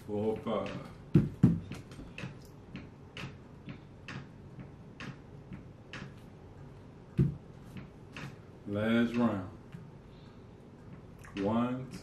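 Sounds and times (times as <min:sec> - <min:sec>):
clock ticking: 0:02.0 - 0:09.5.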